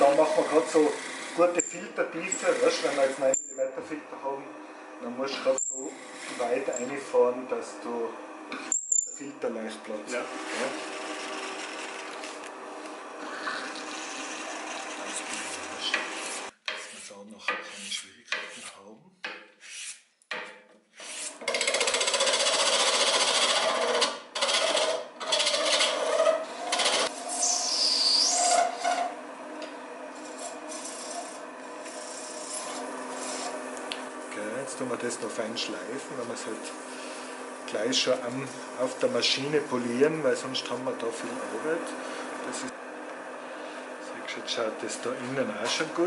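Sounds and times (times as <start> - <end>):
turning tool scraping wood: 0.0 - 3.6, 5.1 - 7.4, 9.6 - 18.8, 21.0 - 29.2, 30.1 - 42.8
lathe motor running: 0.0 - 16.5, 21.4 - 46.0
high squeal: 27.2 - 29.1.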